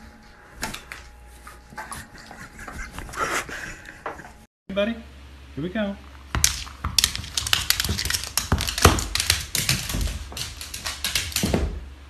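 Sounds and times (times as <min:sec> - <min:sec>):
dog claws clicking on wooden floor: 0:06.4 - 0:11.9.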